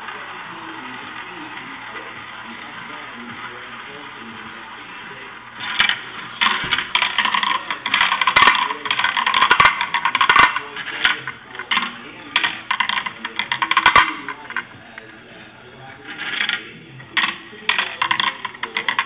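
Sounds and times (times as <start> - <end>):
marbles clattering in plastic run: 5.6 - 14.8, 16.0 - 19.0.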